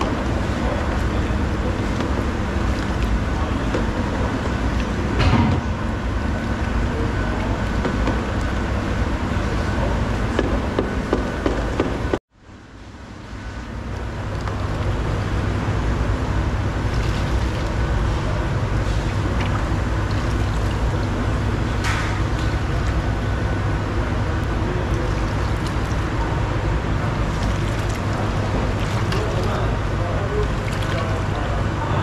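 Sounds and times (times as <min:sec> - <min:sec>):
kitchen machinery rumble: 0:00.0 - 0:12.2, 0:12.9 - 0:32.0.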